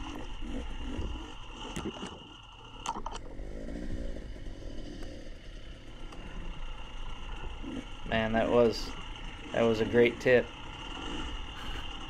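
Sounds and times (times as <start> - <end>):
dirt bike engine revving: 5.4 - 12.0.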